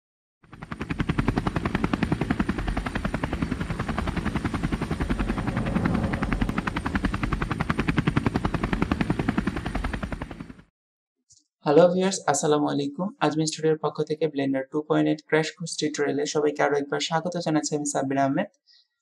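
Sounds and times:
propeller plane engine: 0.4 - 10.7.

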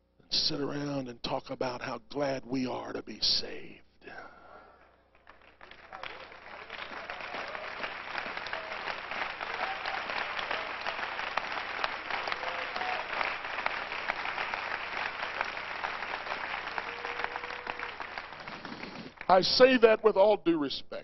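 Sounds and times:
congregation applauding: 5.1 - 20.0.

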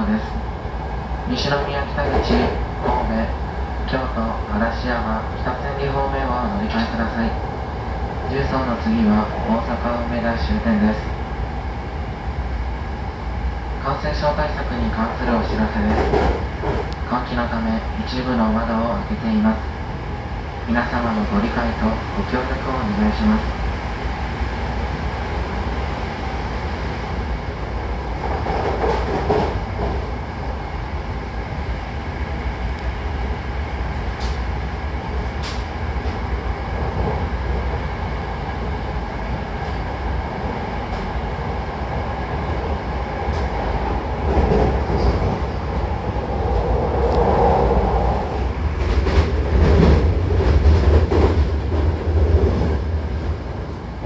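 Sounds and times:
train wheels rumbling: 0.0 - 4.2, 5.3 - 18.4, 19.6 - 54.0.

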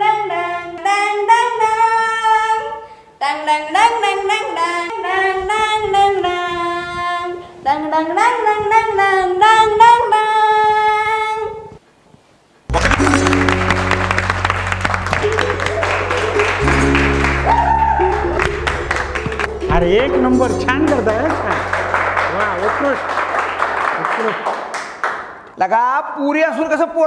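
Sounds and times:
woman singing unaccompanied: 0.0 - 11.4
clapping: 12.7 - 19.7, 20.9 - 25.6
loud music burst: 12.7 - 24.8.

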